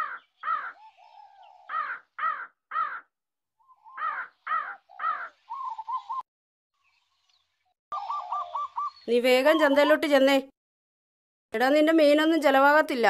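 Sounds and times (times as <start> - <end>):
crow cawing: 0.0 - 3.1, 3.8 - 5.4.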